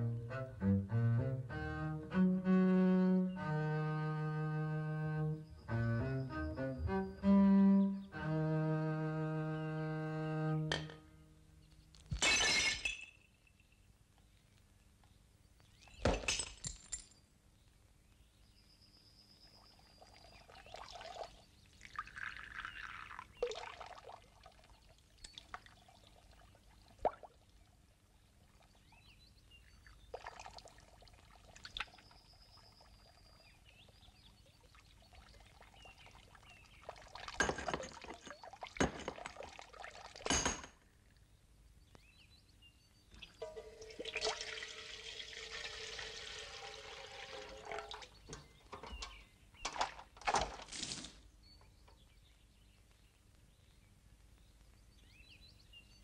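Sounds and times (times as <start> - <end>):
sharp knocks and clinks: 40.3 - 40.8.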